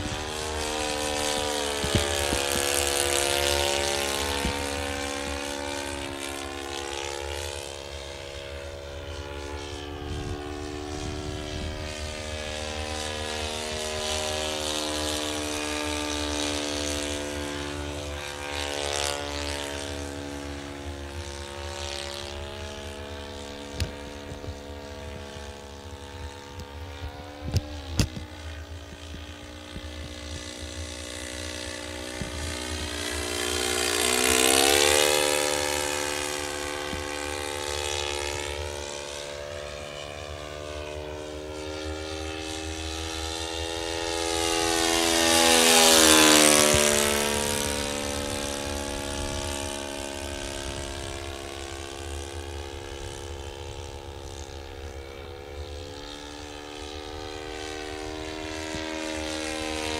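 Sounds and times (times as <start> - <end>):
model plane engine running: 0.0 - 59.9.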